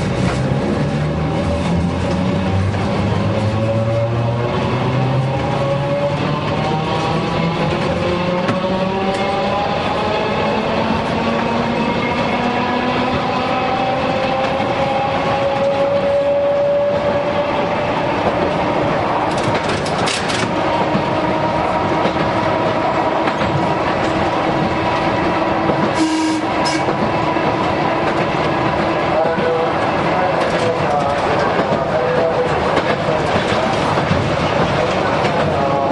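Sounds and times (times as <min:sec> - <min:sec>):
tram motors whining and grinding: 0:00.0 - 0:35.9
sharp clacks: 0:19.2 - 0:21.1.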